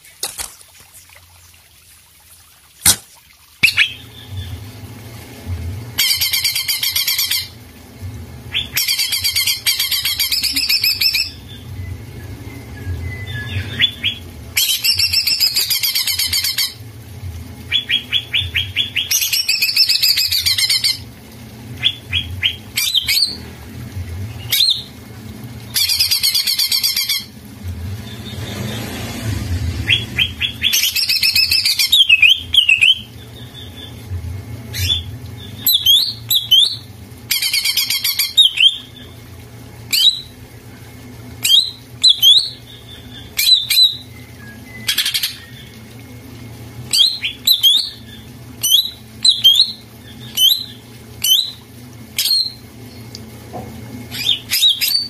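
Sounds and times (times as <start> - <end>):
bird chirps and whistles: 3.6 - 4.1, 8.5 - 16.8, 29.8 - 33.9, 34.7 - 39.0, 39.9 - 40.3, 41.4 - 45.7, 46.9 - 51.6, 52.2 - 52.6, 54.1 - 55.0.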